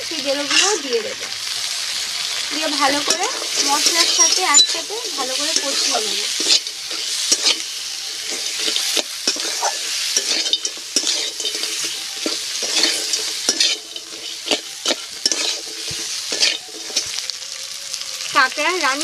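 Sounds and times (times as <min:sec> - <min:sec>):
crab pieces sizzling in oil: 0:00.0 - 0:19.0
metal spatula scraping a pan: 0:00.4 - 0:01.0, 0:02.8 - 0:17.3.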